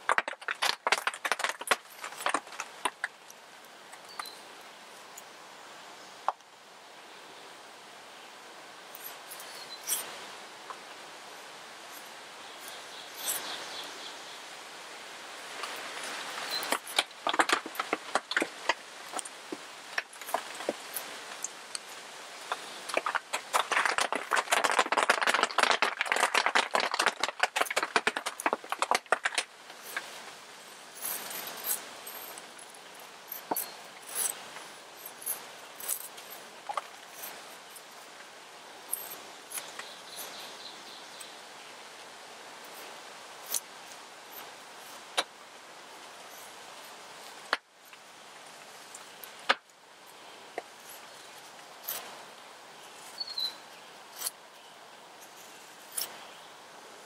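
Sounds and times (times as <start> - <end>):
raindrops popping on a tarp: 0.0 - 3.4, 15.6 - 30.4.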